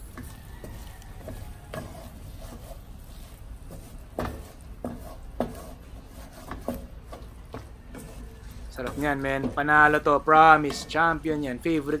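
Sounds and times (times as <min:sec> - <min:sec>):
spatula scraping meat in wok: 0:00.0 - 0:12.0
spatula knocking against pan: 0:00.1 - 0:02.6, 0:03.7 - 0:05.7, 0:06.4 - 0:08.2.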